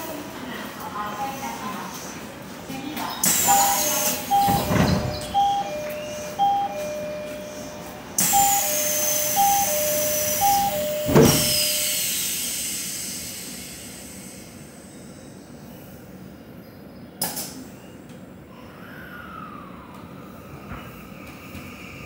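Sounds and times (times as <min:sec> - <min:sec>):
two-tone train door chime: 0:03.2 - 0:12.2
sliding doors shutting thud: 0:04.3 - 0:07.0, 0:10.4 - 0:11.8.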